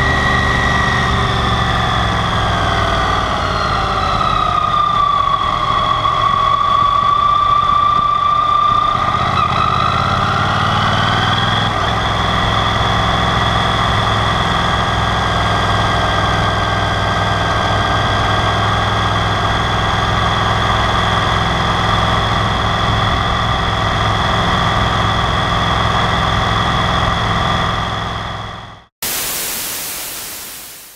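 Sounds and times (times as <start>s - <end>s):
static hiss: 29.0s - 30.9s
steady high whine: 29.0s - 30.9s.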